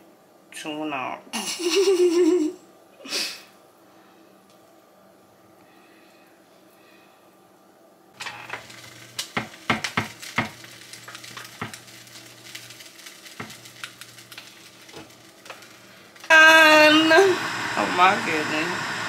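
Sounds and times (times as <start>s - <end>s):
sandwich sizzling on a grill: 8.2s - 19.0s.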